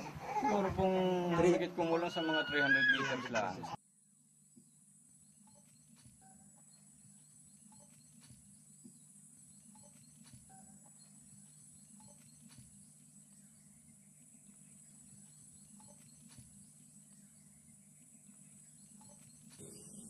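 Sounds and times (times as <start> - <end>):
high insect drone: 3.8 - 20.0
faint chirps: 4.0 - 20.0.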